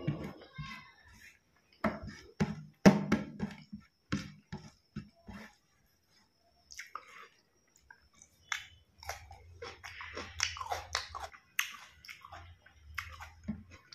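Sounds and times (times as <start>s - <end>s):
mouth chewing food: 3.8s - 13.9s.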